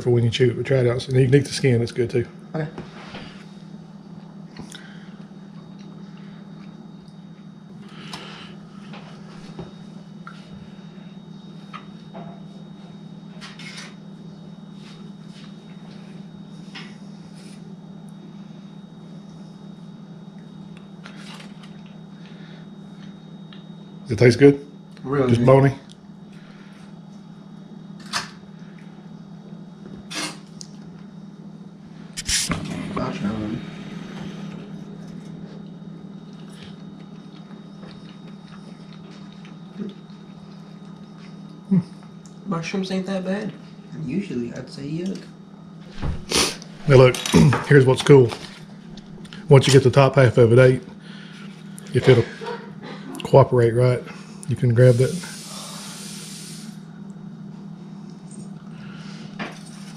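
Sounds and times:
steady low hum: 0:00.0 - 0:59.9
chewing: 0:36.3 - 0:41.6.

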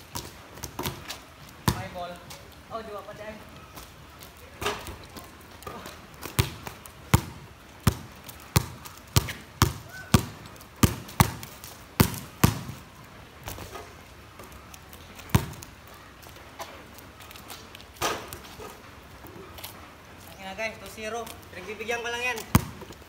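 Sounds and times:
basketball bouncing on wet concrete: 0:00.0 - 0:02.4, 0:04.5 - 0:13.8, 0:15.2 - 0:15.8, 0:17.9 - 0:18.7, 0:22.2 - 0:23.0.

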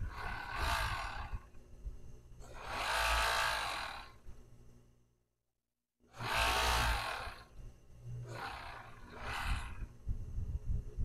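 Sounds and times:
overlock machine stitching: 0:00.0 - 0:01.6, 0:02.4 - 0:04.2, 0:06.1 - 0:07.6, 0:08.2 - 0:09.9
low motor hum: 0:00.0 - 0:05.2, 0:06.1 - 0:11.0.

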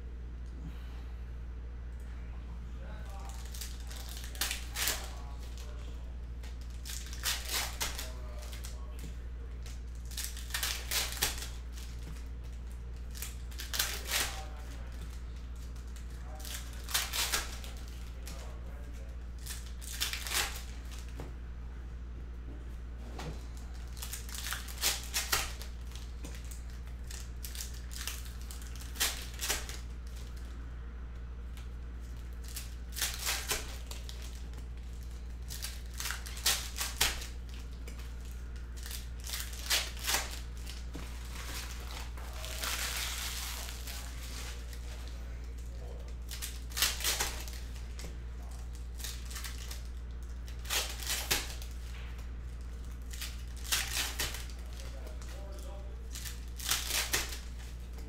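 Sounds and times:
steady low hum: 0:00.0 - 0:58.0
foil card packs tearing and crinkling: 0:03.1 - 0:05.9, 0:06.5 - 0:21.1, 0:23.4 - 0:30.4, 0:32.1 - 0:51.9, 0:52.5 - 0:57.9
cards being handled: 0:03.1 - 0:21.2.

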